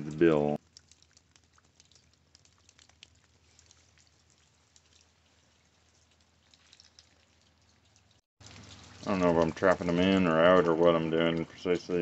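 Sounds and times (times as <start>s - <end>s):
light raindrops ticking: 0.0s - 12.0s.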